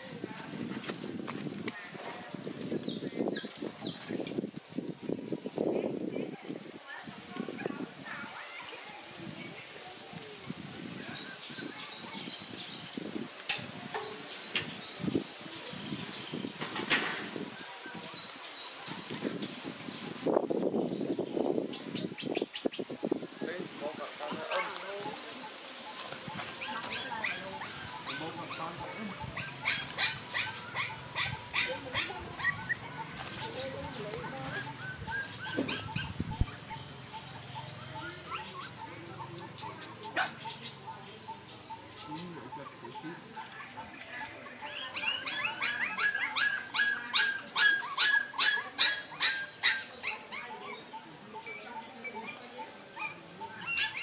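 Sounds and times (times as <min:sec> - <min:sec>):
puppy whimpering: 0:34.2 - 0:36.6, 0:44.6 - 0:50.8.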